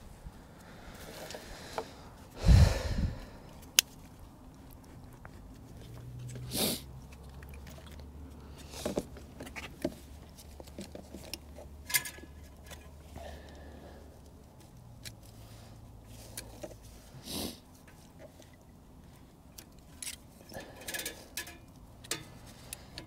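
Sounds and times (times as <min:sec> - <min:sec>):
sharp clicks of engine parts: 0:19.5 - 0:23.0.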